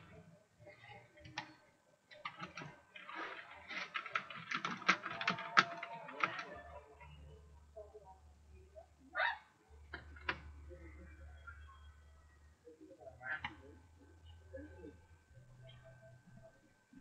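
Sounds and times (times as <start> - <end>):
computer keyboard typing: 3.8 - 6.6.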